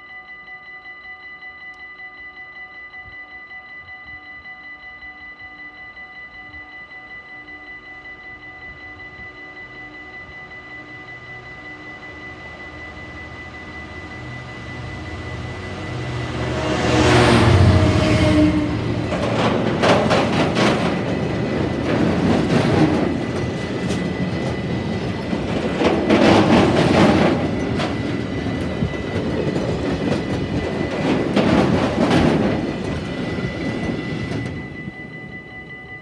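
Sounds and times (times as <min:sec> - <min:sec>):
diesel locomotive engine: 0:08.6 - 0:36.0
train wheels clacking on rail joints: 0:16.2 - 0:35.2.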